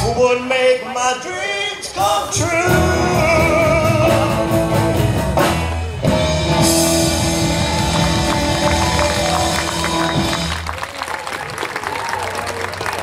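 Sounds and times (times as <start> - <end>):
rock band playing: 1.8 - 10.9.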